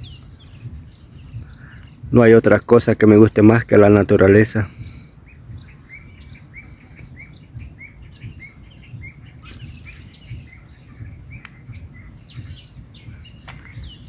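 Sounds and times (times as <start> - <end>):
low rumble: 0.0 - 2.2, 4.6 - 14.0
small birds chirping: 0.0 - 14.0.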